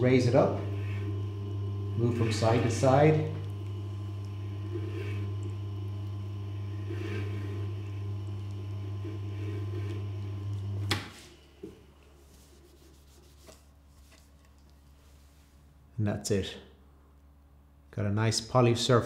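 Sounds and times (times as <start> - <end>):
electric motor humming: 0.0 - 11.0.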